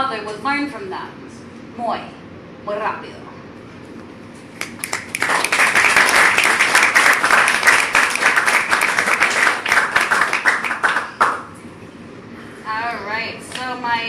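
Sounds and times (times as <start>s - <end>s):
small audience applause: 4.6s - 11.5s.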